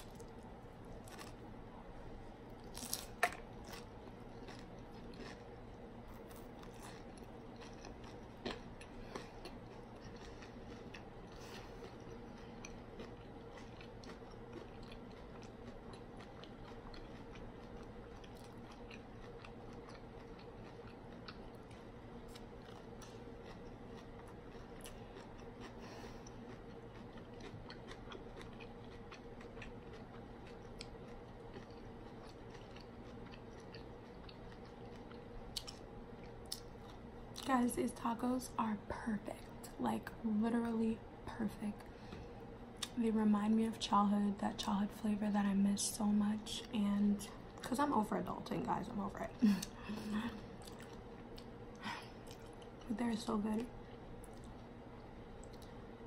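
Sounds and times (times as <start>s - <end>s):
chewing crispy taco: 0.0s - 1.7s, 2.4s - 37.6s, 49.4s - 52.9s, 53.6s - 55.9s
steady hum: 0.0s - 56.0s.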